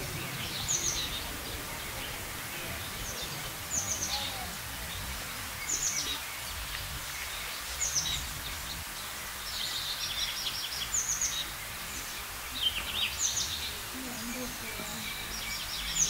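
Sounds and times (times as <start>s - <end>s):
low street noise: 0.0s - 16.0s
songbird singing: 0.0s - 16.0s.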